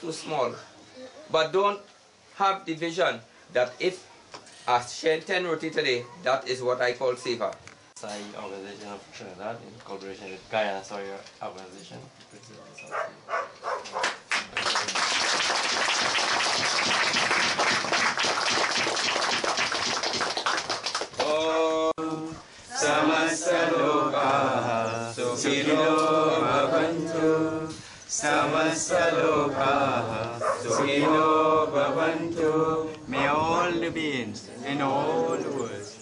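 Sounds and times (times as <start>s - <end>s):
applause: 14.0s - 21.5s
group of voices chanting: 21.2s - 33.4s.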